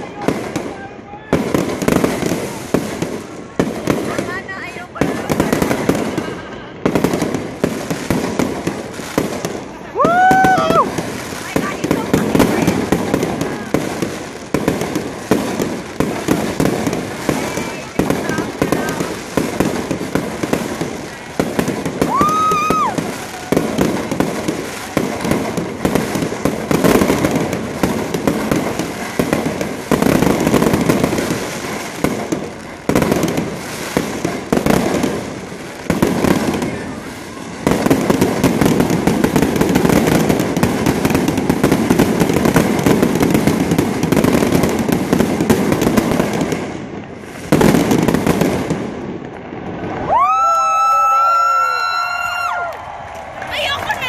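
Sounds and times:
fireworks bursting and crackling: 0:00.0 - 0:54.0
crowd crying out: 0:09.9 - 0:11.0, 0:21.3 - 0:24.0, 0:49.8 - 0:54.0.

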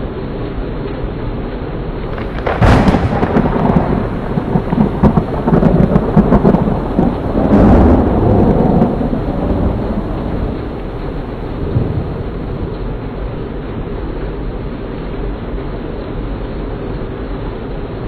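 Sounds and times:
heavy rain pouring: 0:00.0 - 0:18.0
thunderclap and rumble: 0:02.0 - 0:18.0.

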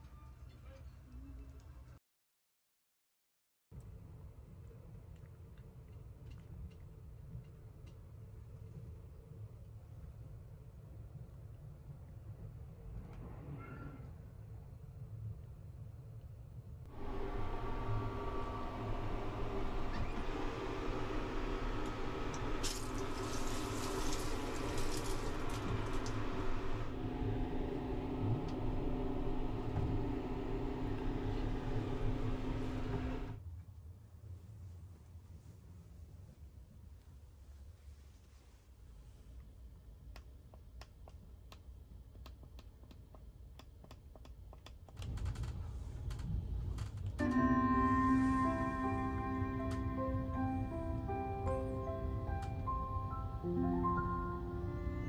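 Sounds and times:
train rumbling: 0:16.8 - 0:33.4, 0:44.6 - 0:55.0
shower water running: 0:20.8 - 0:26.9
sharp clicks and ticks: 0:40.2 - 0:45.4.

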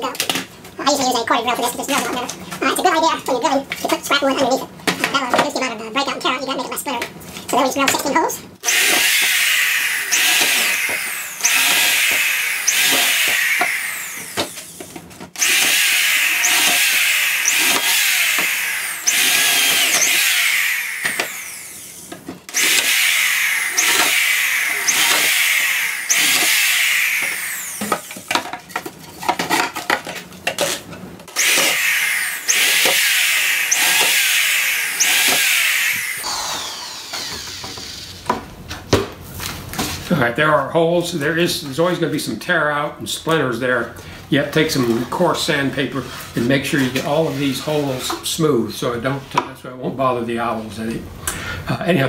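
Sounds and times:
power drill boring wood: 0:08.6 - 0:14.8, 0:15.4 - 0:28.4, 0:31.3 - 0:38.4.

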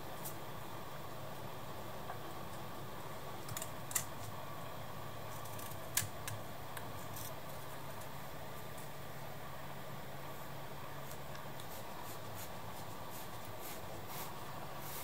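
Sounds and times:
steady low hum: 0:00.0 - 0:15.0
knife shaving wood: 0:05.2 - 0:09.0, 0:11.0 - 0:15.0.

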